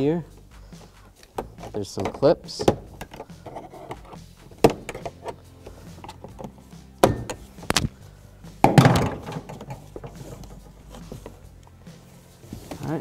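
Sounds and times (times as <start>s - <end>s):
plastic clips snapping: 7.3s - 8.0s.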